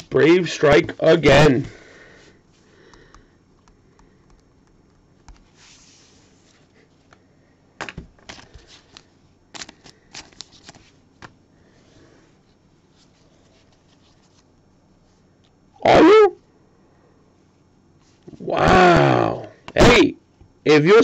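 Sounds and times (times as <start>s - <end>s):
soft brushing of cards: 5.3s - 7.1s, 8.3s - 11.0s, 11.7s - 15.3s, 18.0s - 18.3s.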